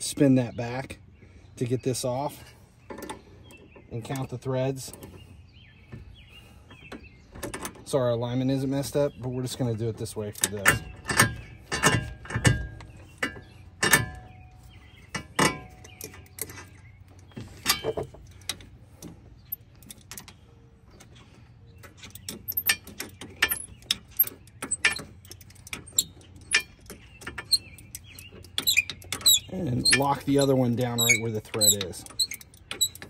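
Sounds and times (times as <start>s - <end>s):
metal tools clicking and clinking: 21.8s - 33.0s.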